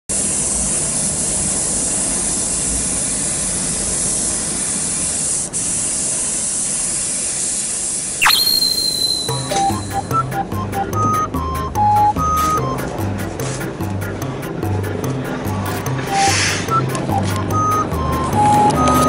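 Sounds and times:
paint spray gun hissing: 0:00.1 - 0:09.8
rising whistle sound effect: 0:08.2 - 0:10.2.

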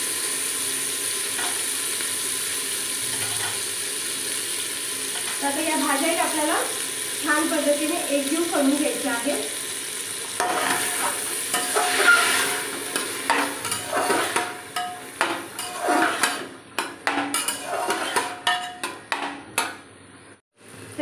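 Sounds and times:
vegetables sizzling in oil: 0:00.0 - 0:21.0
spatula scraping a pot: 0:10.4 - 0:16.5, 0:17.1 - 0:18.9.

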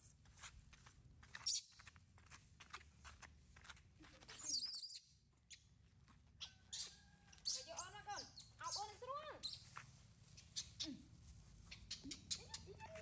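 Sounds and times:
monkeys tapping and scuffing on ground: 0:06.0 - 0:13.0.

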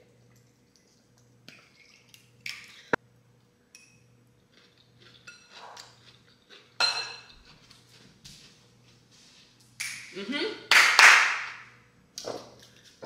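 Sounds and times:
utensils clinking on dishes: 0:05.2 - 0:05.9, 0:06.8 - 0:07.5.

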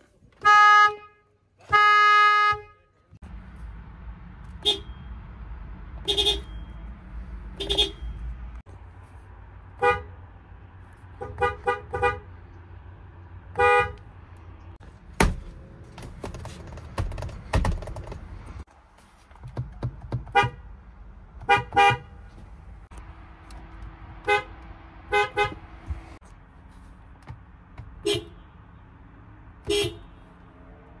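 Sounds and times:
car horns beeping: 0:00.3 - 0:03.1, 0:04.5 - 0:05.2, 0:06.0 - 0:06.9, 0:07.5 - 0:08.5, 0:09.8 - 0:10.2, 0:11.2 - 0:12.3, 0:13.5 - 0:14.1, 0:20.1 - 0:20.7, 0:21.4 - 0:22.4, 0:24.2 - 0:26.1, 0:27.8 - 0:28.6, 0:29.6 - 0:30.2.

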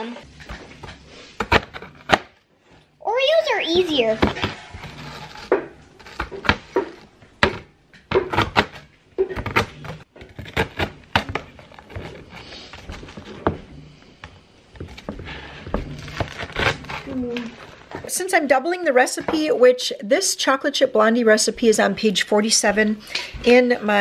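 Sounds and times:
knife chopping cookies on board: 0:05.4 - 0:13.6.

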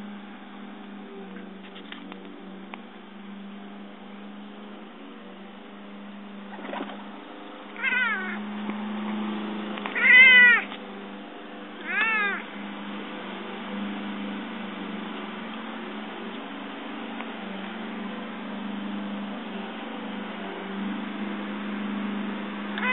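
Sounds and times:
cat chirping: 0:07.8 - 0:08.4, 0:09.9 - 0:10.7, 0:11.8 - 0:12.4.

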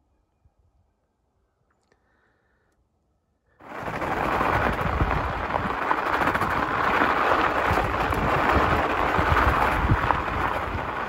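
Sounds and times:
tyre crackling over packed snow: 0:03.6 - 0:11.0
wind on microphone: 0:03.6 - 0:11.0.

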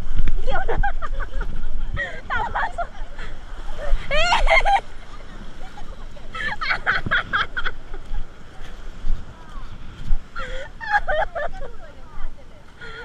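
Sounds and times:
small waves on sandy shore: 0:00.0 - 0:13.0
wind buffeting microphone: 0:00.0 - 0:13.0.

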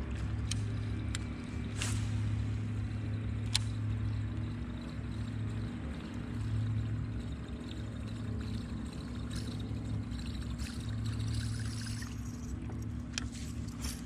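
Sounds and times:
low pump hum: 0:00.0 - 0:14.0
water pouring and trickling: 0:03.9 - 0:14.0.

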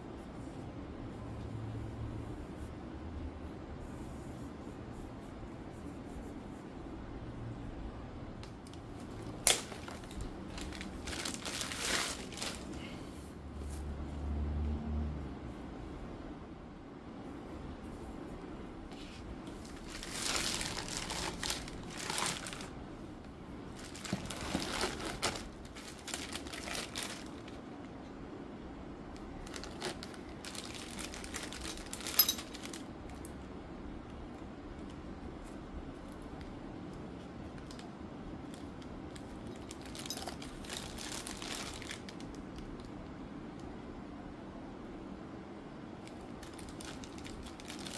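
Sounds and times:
plastic bags crinkling: 0:08.6 - 0:13.0, 0:19.5 - 0:23.0, 0:23.6 - 0:27.6, 0:29.4 - 0:33.2, 0:39.1 - 0:42.4, 0:46.4 - 0:47.9.

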